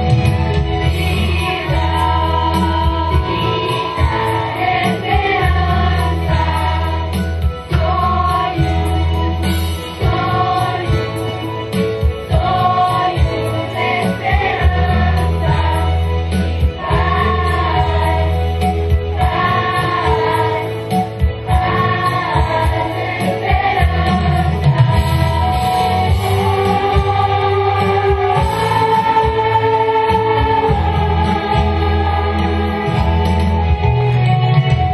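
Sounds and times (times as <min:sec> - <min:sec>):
children's choir singing: 0:00.8 - 0:34.7.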